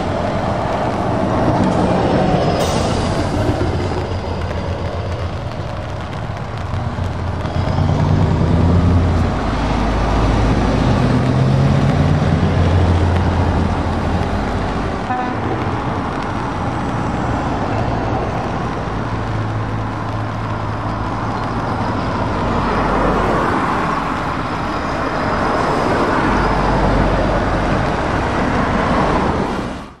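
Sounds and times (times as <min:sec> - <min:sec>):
trucks and cars driving past: 0:00.0 - 0:30.0
tyres hissing on wet road: 0:00.0 - 0:30.0
truck horn toots: 0:15.0 - 0:15.5.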